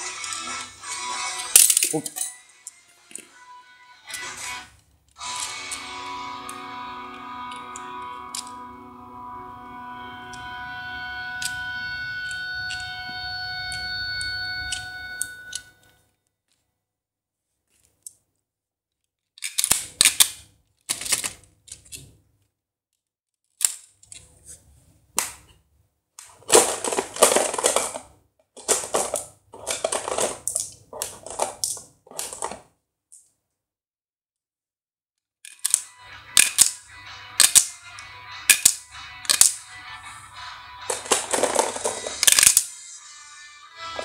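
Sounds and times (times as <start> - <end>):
toy launcher plastic clicks: 35.5 - 39.9, 40.8 - 42.8
marbles rattling: 40.9 - 42.6.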